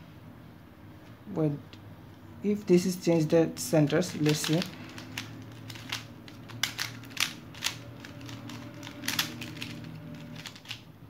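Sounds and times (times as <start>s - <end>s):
puzzle cube clicking: 3.9s - 10.8s.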